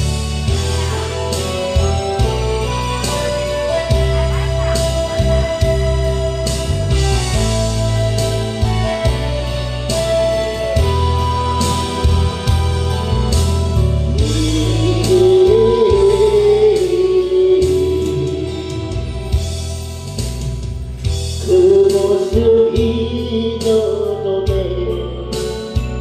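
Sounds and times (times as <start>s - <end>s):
backing track with bass: 0.0s - 26.0s
person singing ballad: 0.0s - 26.0s.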